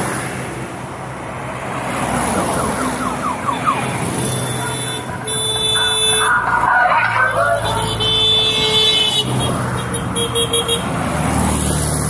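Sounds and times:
cars driving past: 0.0 - 12.0
ambulance siren: 2.1 - 8.6
car horn: 4.0 - 10.9.

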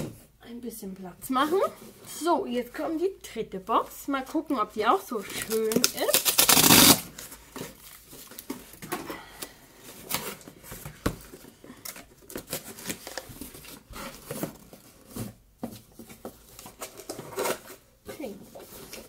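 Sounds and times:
cardboard boxes rustling and scraping: 9.8 - 19.0.

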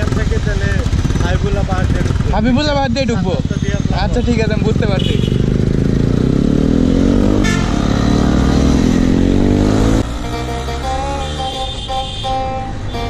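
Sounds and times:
motorcycle engine accelerating: 0.0 - 13.0
background music: 9.8 - 13.0.

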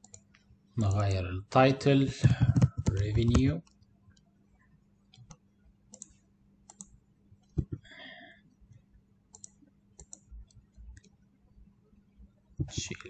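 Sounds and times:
computer mouse and keyboard clicks: 0.0 - 0.4, 2.2 - 4.3, 5.1 - 7.8, 9.3 - 11.2
faint steady hum: 0.0 - 13.0.

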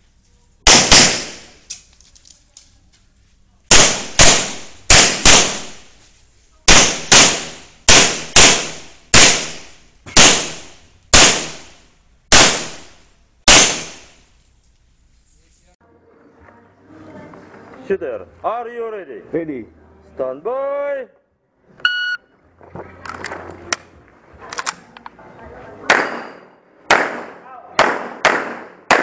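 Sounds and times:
handgun shots with echo: 0.7 - 1.7, 3.7 - 5.8, 6.7 - 11.7, 12.3 - 12.9, 13.5 - 14.1, 25.9 - 29.0.

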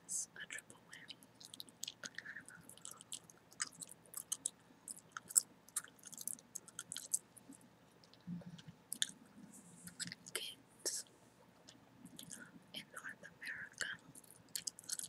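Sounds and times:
gum chewing mouth clicks: 1.4 - 7.2, 8.0 - 9.2, 14.1 - 15.0.

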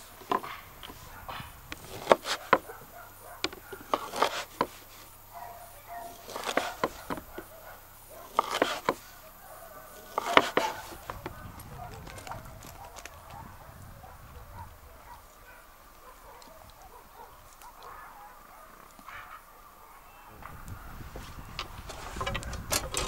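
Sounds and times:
knife chopping on cutting board: 3.8 - 4.8, 8.3 - 9.0.

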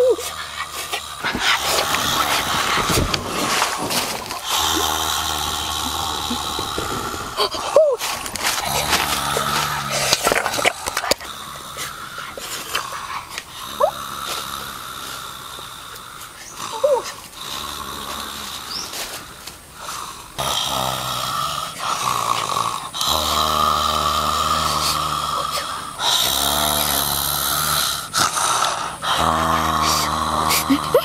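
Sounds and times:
young man groaning: 1.3 - 10.6.

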